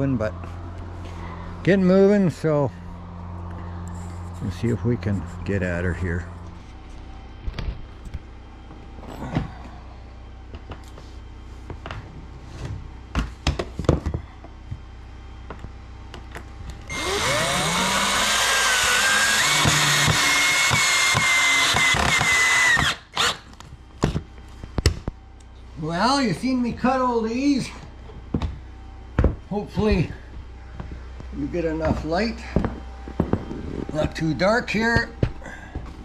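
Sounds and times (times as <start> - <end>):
cordless drill boring wood: 16.9 - 23.5.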